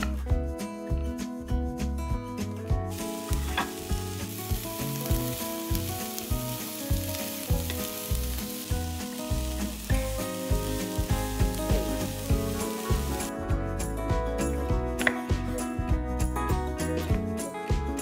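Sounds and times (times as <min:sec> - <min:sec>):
background music with a beat: 0:00.0 - 0:18.0
food sizzling in a pan: 0:02.9 - 0:13.4.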